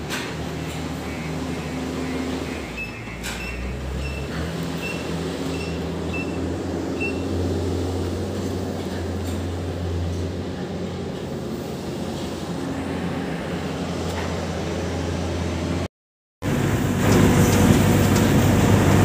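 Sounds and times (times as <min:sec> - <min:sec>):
heavy machinery humming: 0:00.0 - 0:19.0.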